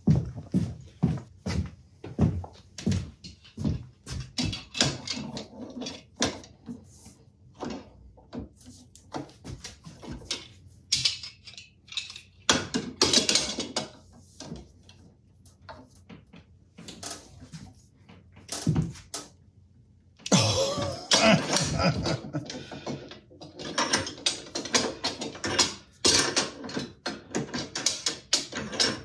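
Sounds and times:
metal clicks and clanks: 4.2s - 6.6s, 10.0s - 15.0s, 21.1s - 29.0s.

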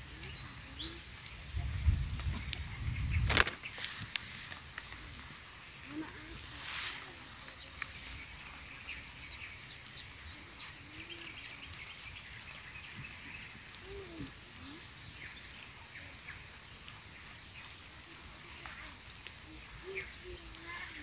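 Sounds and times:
steady hiss: 0.0s - 21.0s
light ticks: 3.3s - 5.1s
faint bird calls: 17.6s - 21.0s.

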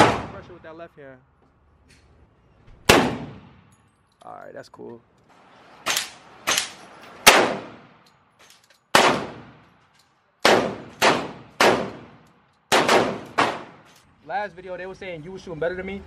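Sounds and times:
pistol shots with echo: 0.0s - 0.5s, 2.9s - 3.7s, 5.9s - 7.9s, 8.9s - 9.6s, 10.4s - 13.9s.

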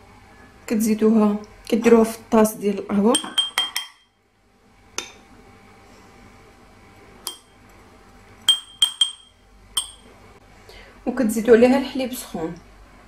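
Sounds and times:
teaspoon clinking on a cup: 3.1s - 4.1s, 8.5s - 10.1s.

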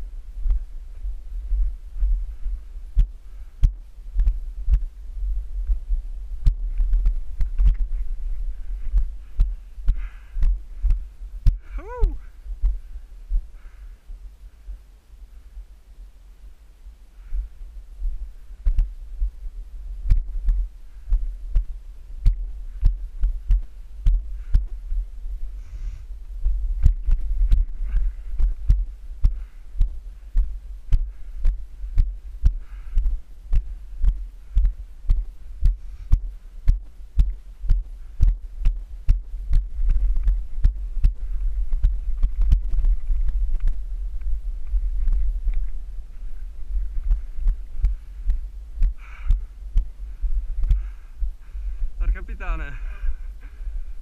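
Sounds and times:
wind rumble on microphone: 0.0s - 54.0s
footsteps on rock: 26.5s - 51.0s.

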